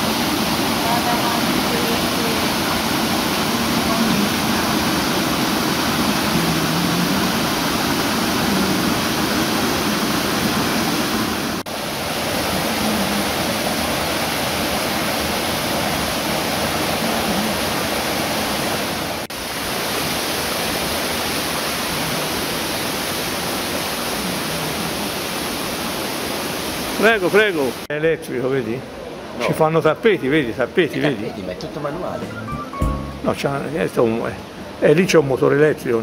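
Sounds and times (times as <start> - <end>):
fast-flowing stream water: 0.0 - 27.9.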